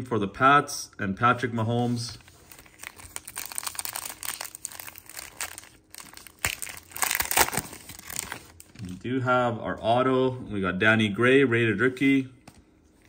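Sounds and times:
card pack wrapper crinkling: 2.2s - 9.0s
wrapper tearing: 2.3s - 9.0s.

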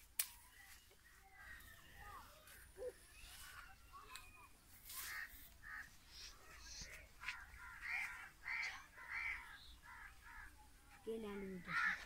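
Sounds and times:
crow cawing: 4.9s - 10.6s, 11.6s - 12.0s.

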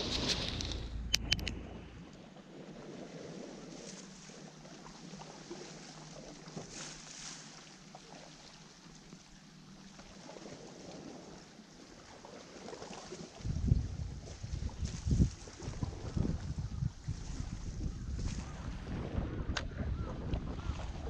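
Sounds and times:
sea washing against rocks: 0.0s - 1.1s
wind on microphone: 13.4s - 21.0s.

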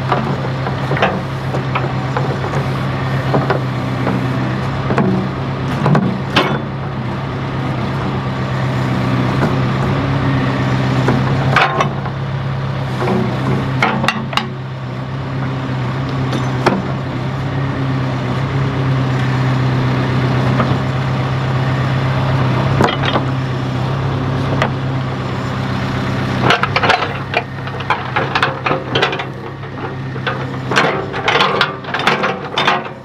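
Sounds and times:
metal clanks from bucket linkage: 0.0s - 2.7s, 4.9s - 6.8s, 11.0s - 12.2s, 13.0s - 14.6s, 16.3s - 17.0s, 22.8s - 23.3s, 26.4s - 33.0s
backhoe engine running: 0.0s - 33.0s.

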